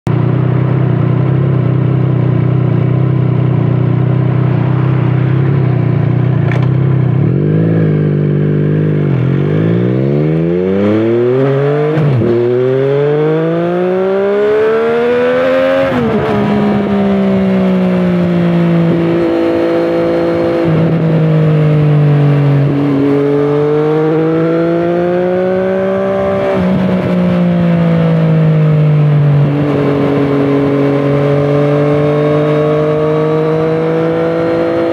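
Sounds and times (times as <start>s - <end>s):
motorcycle engine revving: 0.1s - 34.9s.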